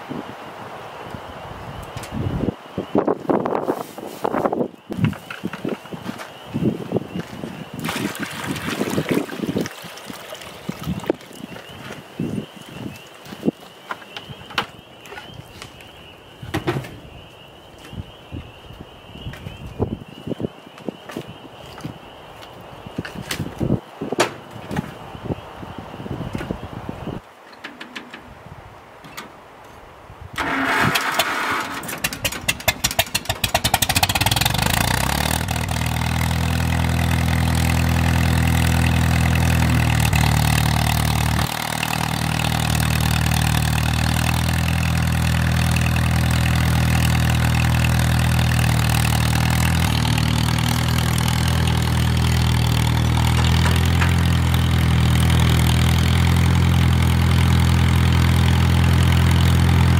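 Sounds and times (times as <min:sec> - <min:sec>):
tractor engine starting and idling: 0:30.4 - 0:59.9.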